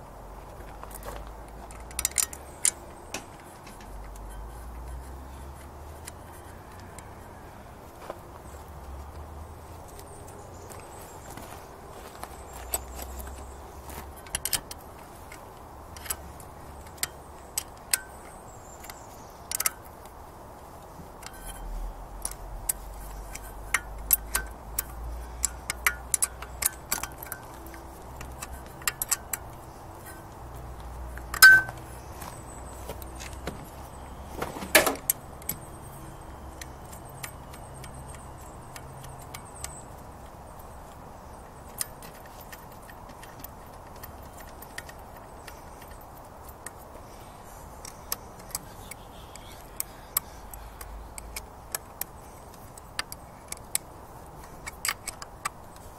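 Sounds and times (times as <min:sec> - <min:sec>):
metal tools clinking: 0:01.6 - 0:07.2, 0:21.0 - 0:55.9
metallic clanks: 0:21.2 - 0:32.0.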